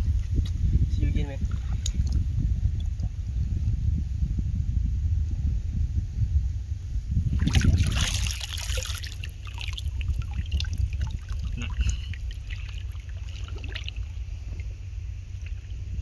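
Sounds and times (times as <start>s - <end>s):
steady low rumble: 0.0s - 16.0s
seawater splashing and trickling: 7.3s - 16.0s
water dripping: 7.5s - 14.7s.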